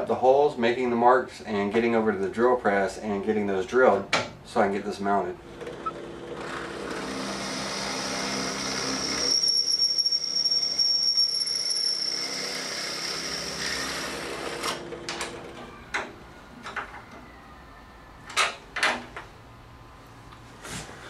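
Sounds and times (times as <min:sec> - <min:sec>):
drill press squealing through metal: 0:05.8 - 0:14.8.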